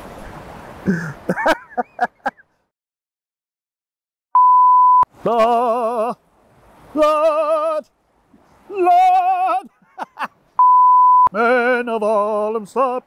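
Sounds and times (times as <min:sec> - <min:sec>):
electronic bleep tone: 0:04.4 - 0:05.1, 0:10.6 - 0:11.3
man singing with vibrato: 0:05.2 - 0:06.2, 0:06.9 - 0:07.9, 0:08.7 - 0:09.7, 0:11.3 - 0:13.0.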